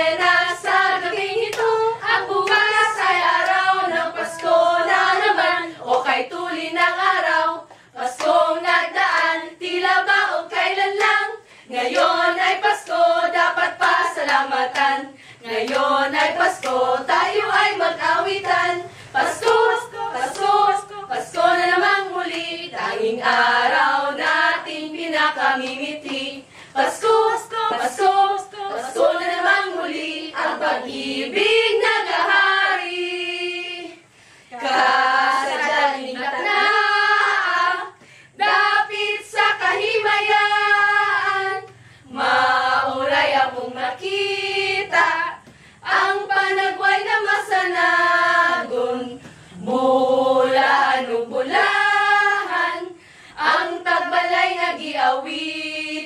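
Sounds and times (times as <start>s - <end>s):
women singing without instruments: 0.0s - 56.0s
hand clapping: 1.4s - 3.7s, 7.7s - 8.4s, 9.0s - 9.4s, 10.9s - 11.2s, 11.9s - 13.0s, 13.8s - 15.0s, 15.6s - 16.9s, 19.3s - 20.7s, 25.6s - 26.3s.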